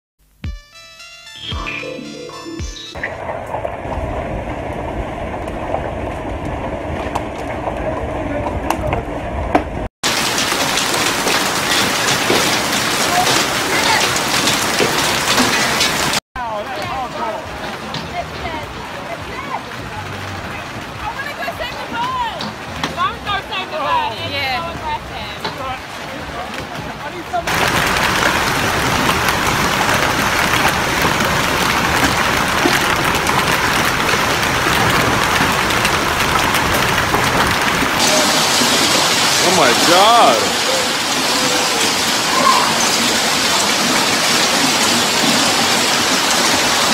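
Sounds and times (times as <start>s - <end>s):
hail pelting water: 3.0s - 46.9s
wind and hail rushing: 3.0s - 46.9s
heavy rain hissing: 10.0s - 46.9s.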